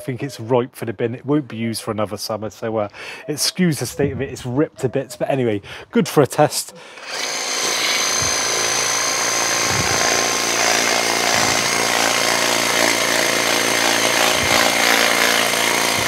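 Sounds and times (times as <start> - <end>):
pressure washer pump whirring: 7.0 - 16.0.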